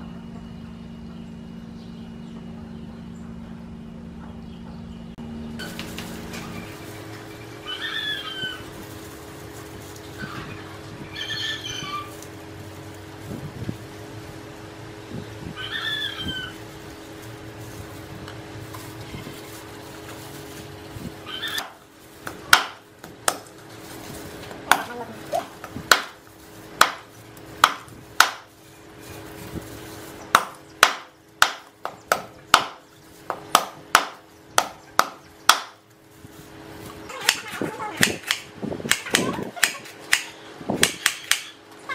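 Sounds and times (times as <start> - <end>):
cleaver chopping on wooden block: 22.2 - 23.5, 25.6 - 26.2, 26.8 - 27.0, 27.6 - 28.4, 30.3 - 35.7.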